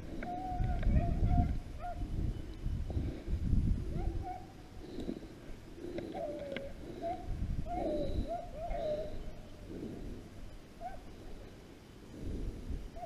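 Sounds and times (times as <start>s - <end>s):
hounds baying: 3.9s - 5.2s, 6.0s - 10.0s, 10.8s - 11.2s.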